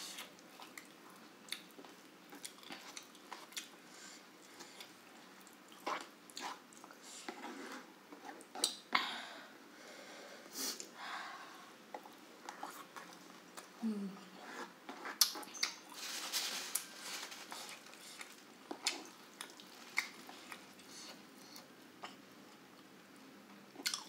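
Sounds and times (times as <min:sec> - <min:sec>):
wet chewing and mouth smacks: 0:00.2 - 0:03.8, 0:15.1 - 0:15.8, 0:17.9 - 0:22.2, 0:23.8 - 0:24.0.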